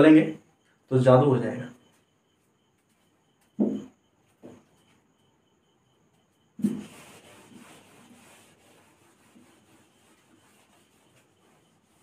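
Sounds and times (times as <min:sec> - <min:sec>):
eraser wiping whiteboard: 0:06.6 - 0:12.0.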